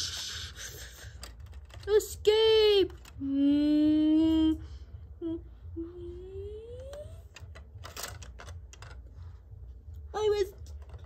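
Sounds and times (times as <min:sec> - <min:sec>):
plastic bricks clicking: 0:00.5 - 0:02.2, 0:02.8 - 0:03.2, 0:06.9 - 0:09.1
person humming sound effects: 0:05.2 - 0:07.3.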